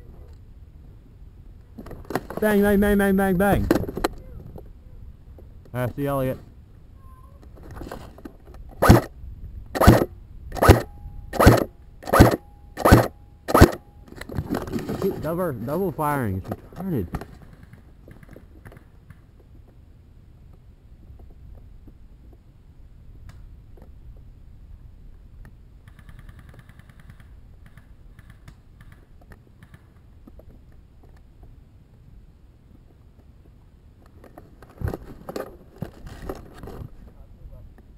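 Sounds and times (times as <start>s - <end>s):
airsoft gun shots: 8.8s - 9.1s, 9.7s - 13.8s
person talking: 15.0s - 17.2s
airsoft gun clicks: 25.4s - 30.0s.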